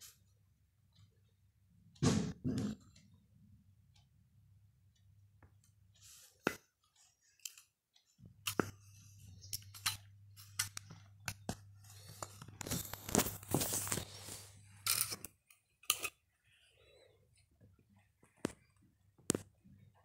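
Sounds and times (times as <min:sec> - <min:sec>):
scraping and rustling: 0:11.9 - 0:15.2.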